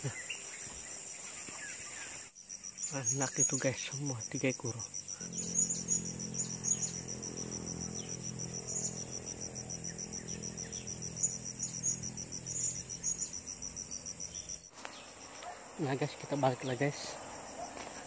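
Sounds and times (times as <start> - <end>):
insects chirring: 0.0 - 18.0
low steady drone: 5.0 - 14.6.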